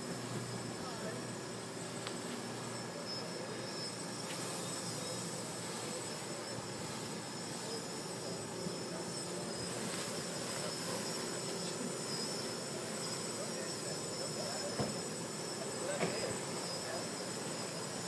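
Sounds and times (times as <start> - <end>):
drone motors and propellers whining: 0.0 - 18.0.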